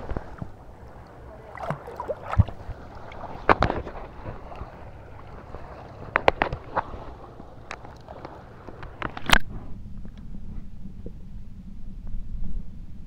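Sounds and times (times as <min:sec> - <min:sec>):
seawater splashing and sloshing: 0:00.0 - 0:09.4.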